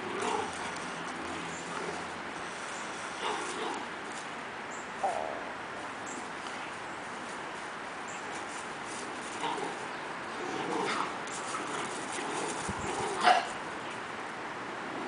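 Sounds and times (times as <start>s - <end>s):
puppies growling and whining: 0.0s - 3.9s, 9.2s - 13.5s.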